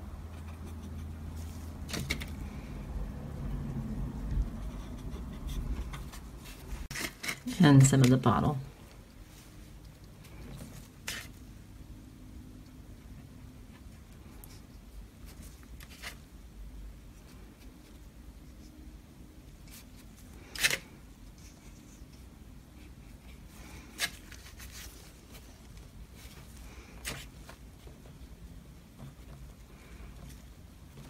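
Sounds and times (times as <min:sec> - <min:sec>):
faint low hum: 0:00.0 - 0:31.0.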